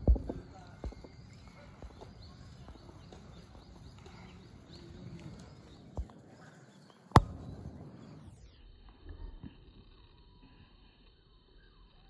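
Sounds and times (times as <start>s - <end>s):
sharp loud click: 7.1s - 7.6s.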